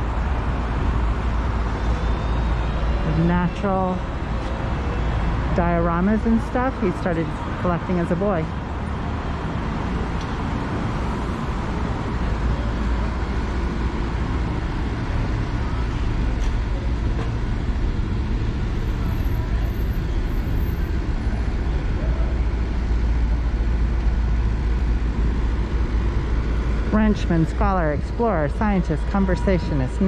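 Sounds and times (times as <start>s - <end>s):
city traffic noise: 0.0s - 30.0s.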